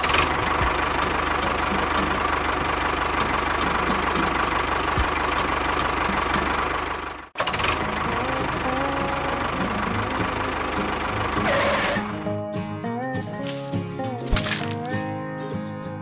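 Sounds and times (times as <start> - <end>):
tractor engine chugging: 0.0 - 12.3.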